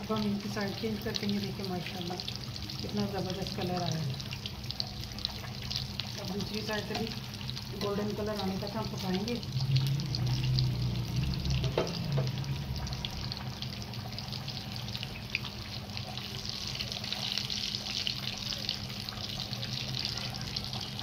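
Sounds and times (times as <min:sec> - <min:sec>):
food sizzling in hot fat: 0:00.0 - 0:21.0
tongs clicking on pan: 0:06.9 - 0:07.2.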